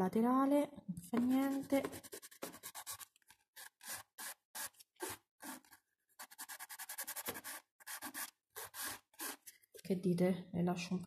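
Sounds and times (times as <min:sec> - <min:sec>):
nail file rasping: 0:01.3 - 0:09.4.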